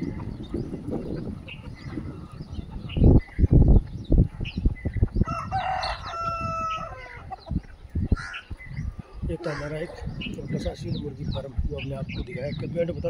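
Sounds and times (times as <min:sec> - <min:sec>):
rooster crowing: 0:05.2 - 0:07.2.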